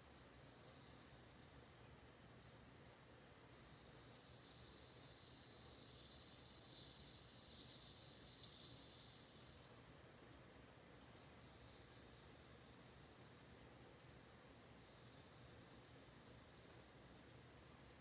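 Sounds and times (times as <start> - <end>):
cricket trilling: 3.6 - 9.8.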